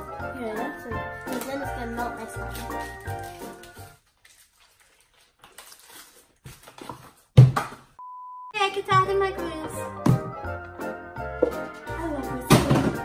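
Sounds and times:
background music: 0.0 - 4.0, 8.6 - 13.0
test-tone beep: 8.0 - 8.6.

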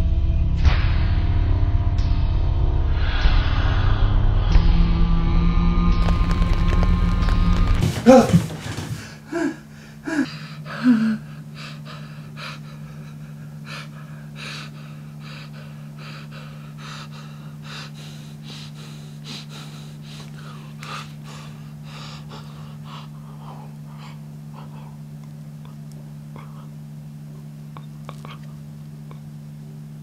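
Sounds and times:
steady low hum: 5.4 - 30.0
man gasping for breath: 7.8 - 25.0.

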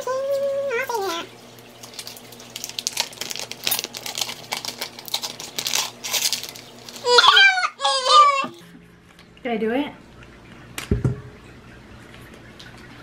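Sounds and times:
paper wrapper crinkling: 1.8 - 8.6.

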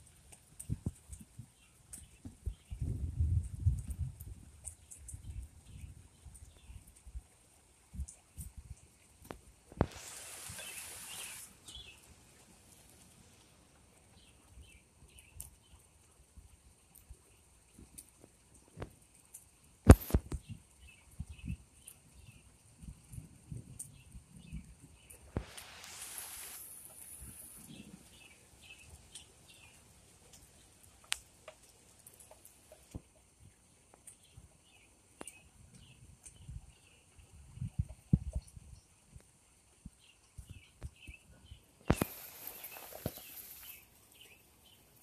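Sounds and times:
light rain hiss: 0.0 - 45.0
rushing hiss: 9.8 - 12.2, 25.3 - 27.9, 41.9 - 43.9
bird chirps: 10.4 - 12.0, 40.5 - 44.8.

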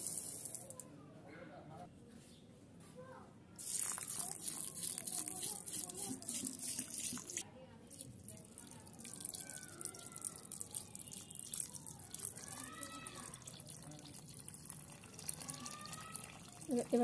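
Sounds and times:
water splashing and bubbling: 3.6 - 7.4, 8.0 - 17.0
tap water running into a pot: 3.6 - 17.0.

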